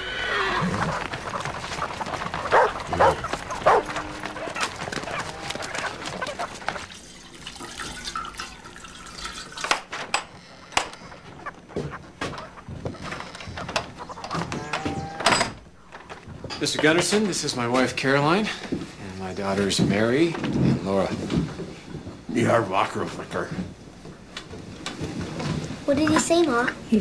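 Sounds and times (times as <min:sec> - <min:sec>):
background clatter: 0:00.5 - 0:27.0
dog barking: 0:02.5 - 0:04.6.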